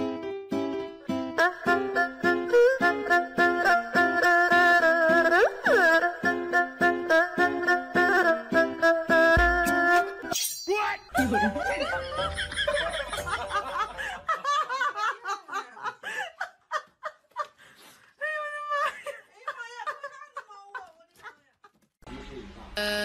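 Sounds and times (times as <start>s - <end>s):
people laughing: 11.2s - 17.6s, 18.4s - 21.7s.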